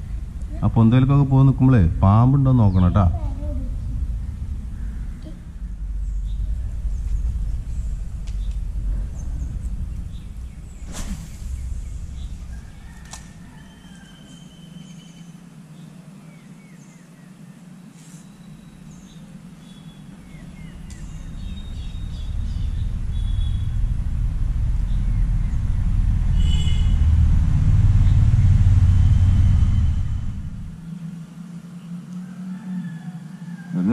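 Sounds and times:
traffic rumble on bridge: 0.0 - 15.6, 18.4 - 31.1
bird chirps: 4.2 - 17.2, 18.0 - 23.9.

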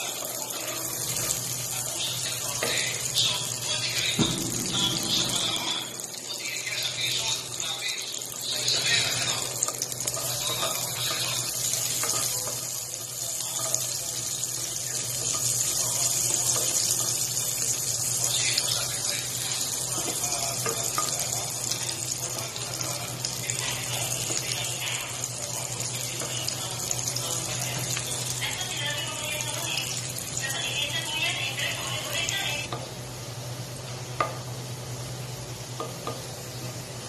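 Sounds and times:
wooden spatula stirring: 0.0 - 3.2, 8.4 - 28.5
garlic sizzling in hot oil: 0.0 - 37.0.

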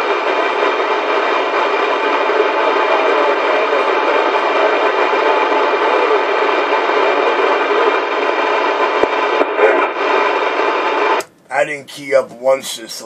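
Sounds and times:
static hiss: 0.0 - 13.0.

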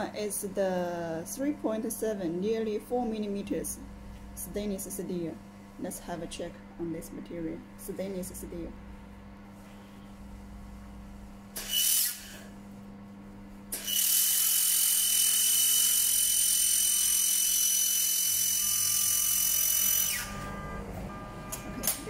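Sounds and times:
laser welder hissing: 11.6 - 12.5
steady high tone: 18.8 - 22.0.

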